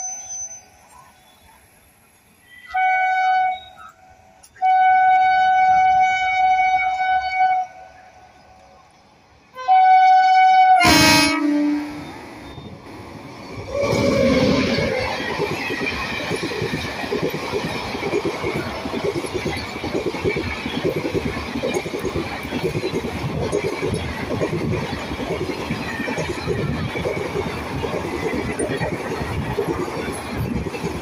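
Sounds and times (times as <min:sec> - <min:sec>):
train passing: 0:00.0 - 0:31.0
locomotive horn blasts: 0:04.6 - 0:07.8, 0:09.6 - 0:12.2.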